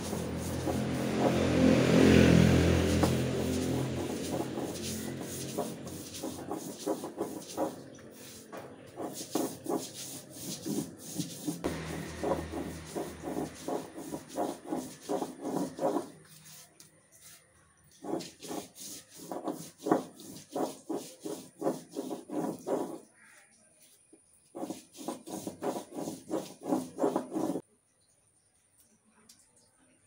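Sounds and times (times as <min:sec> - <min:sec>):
grinding stone scraping: 0:00.0 - 0:01.6, 0:02.8 - 0:16.2.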